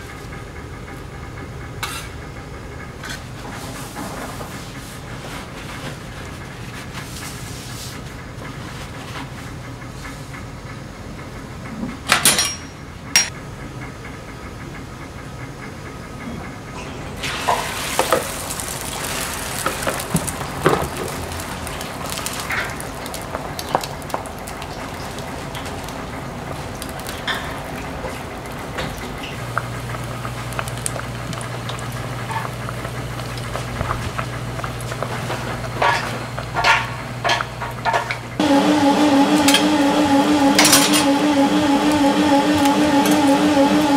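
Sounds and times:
food sizzling on griddle: 0:17.2 - 0:22.8.

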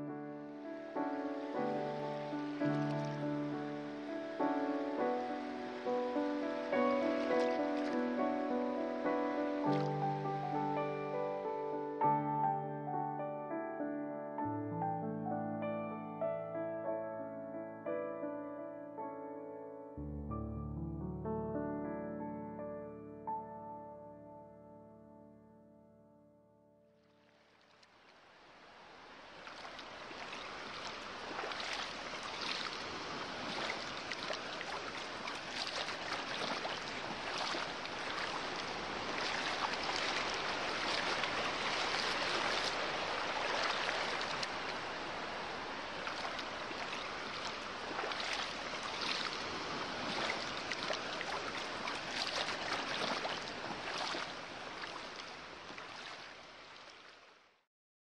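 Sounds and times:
sea surf washing: 0:00.0 - 0:12.3, 0:28.0 - 0:56.9.

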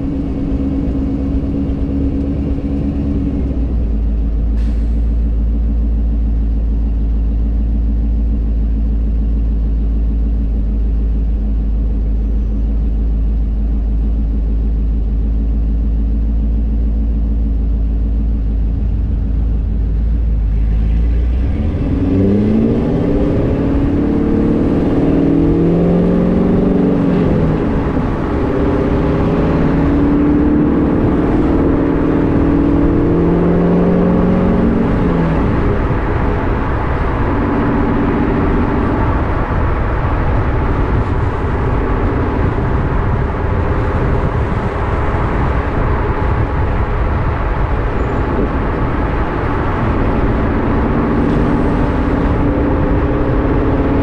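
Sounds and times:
car accelerating with gear changes: 0:00.0 - 0:04.0, 0:18.6 - 0:54.0
car engine idling: 0:00.0 - 0:54.0.

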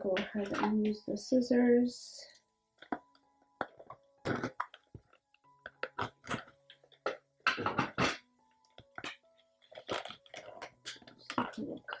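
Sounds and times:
box rustling and clicks: 0:02.8 - 0:12.0.

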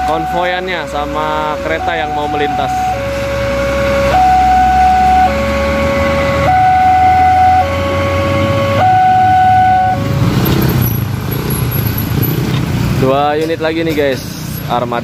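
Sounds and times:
two-tone crossing alarm: 0:00.0 - 0:10.2
road traffic engine noise: 0:00.0 - 0:15.0.

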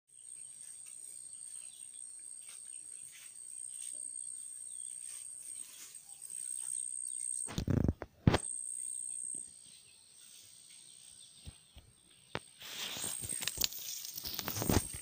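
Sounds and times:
insect trilling: 0:12.6 - 0:15.0.

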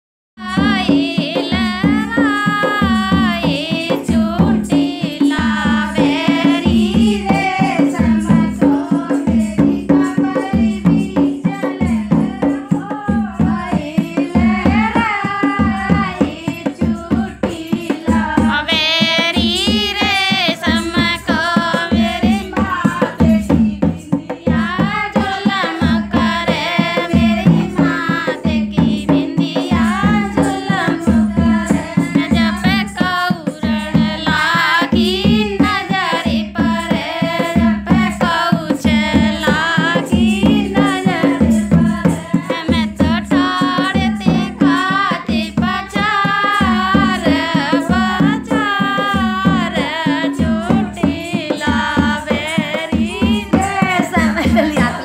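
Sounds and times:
fast drum beat: 0:00.4 - 0:55.0
person singing ornamented phrases: 0:47.3 - 0:55.0.

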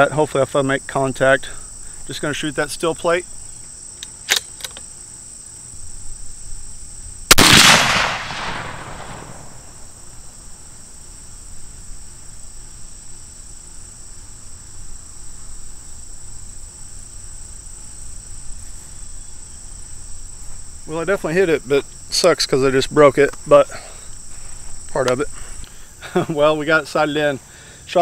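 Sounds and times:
rifle shot with echo: 0:07.3 - 0:09.9.

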